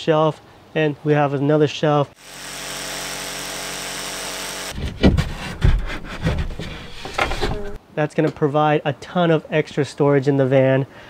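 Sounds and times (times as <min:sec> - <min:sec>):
jigsaw cutting plywood: 0:02.2 - 0:07.8
knocks and thumps of panel: 0:04.8 - 0:07.8.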